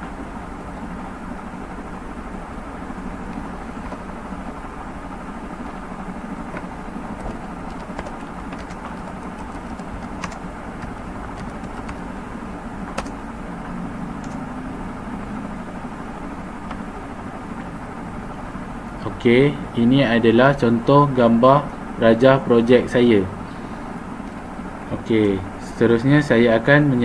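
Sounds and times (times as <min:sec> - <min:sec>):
low background hum: 0:00.0 - 0:27.0
keyboard keys clicking: 0:03.3 - 0:04.1, 0:06.5 - 0:12.1, 0:12.8 - 0:13.2, 0:14.2 - 0:14.4.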